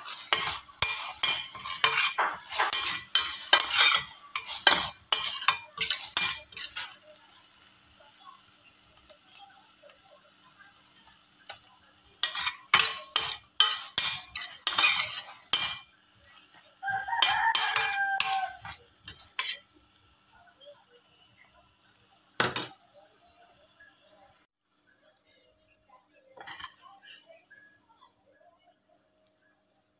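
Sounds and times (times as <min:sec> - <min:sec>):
metal spoon scraping a pan: 0:00.0 - 0:07.6, 0:11.4 - 0:19.7, 0:26.4 - 0:27.4
light sizzle: 0:00.0 - 0:29.9
rooster crowing: 0:16.8 - 0:18.6.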